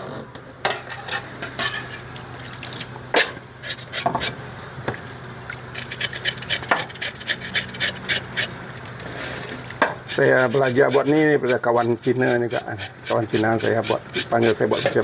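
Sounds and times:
knife scraping skin: 0:03.6 - 0:04.4, 0:05.8 - 0:08.5, 0:10.1 - 0:15.0.

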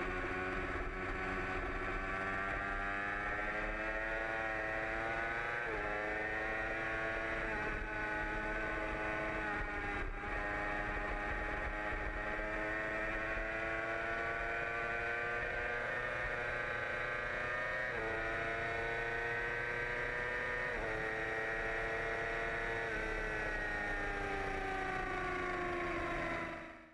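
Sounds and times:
motorcycle engine accelerating: 0:00.0 - 0:26.9.

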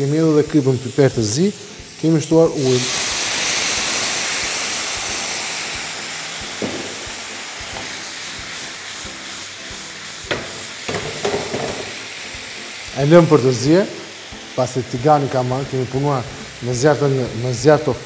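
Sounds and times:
water sizzling in hot pan: 0:00.0 - 0:18.0
pan knocks: 0:10.3 - 0:11.9.

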